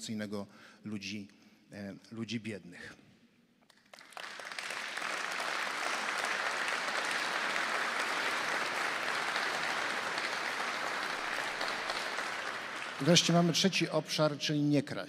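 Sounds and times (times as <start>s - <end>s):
audience applauding: 3.7s - 13.8s.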